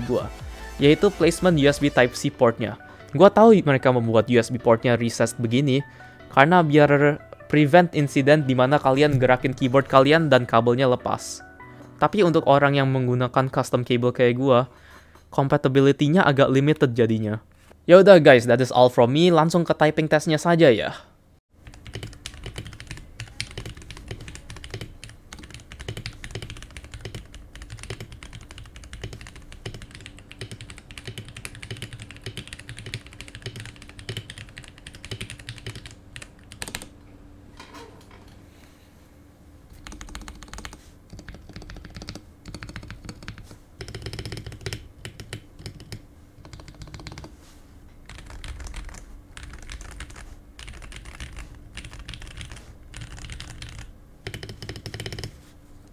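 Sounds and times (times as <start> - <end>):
fast mechanical keyboard typing: 21.6 - 36.9, 39.8 - 47.3, 48.0 - 55.4.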